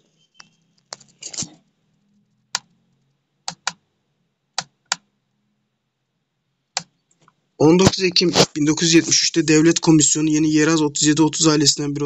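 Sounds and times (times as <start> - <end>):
sharp clicks: 3.5 - 3.8.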